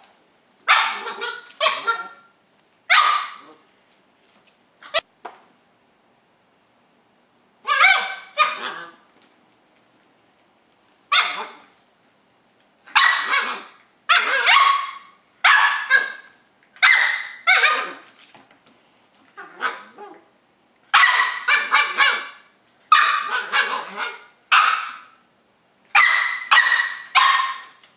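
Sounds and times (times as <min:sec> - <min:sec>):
puppy barking: 0:00.6 - 0:02.3, 0:02.9 - 0:03.6, 0:07.6 - 0:09.0, 0:11.1 - 0:11.7, 0:12.9 - 0:18.0, 0:20.9 - 0:25.2, 0:25.9 - 0:27.8.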